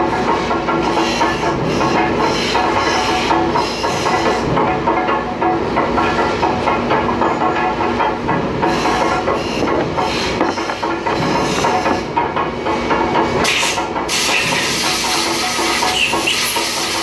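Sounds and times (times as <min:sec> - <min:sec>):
factory machinery clatter: 0:00.0 - 0:17.0
hiss of air: 0:13.4 - 0:17.0.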